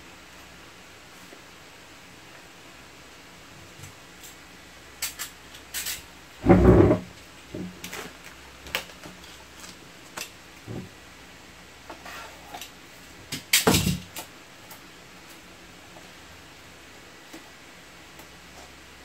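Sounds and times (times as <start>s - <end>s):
heavy thump: 6.4s - 7.1s.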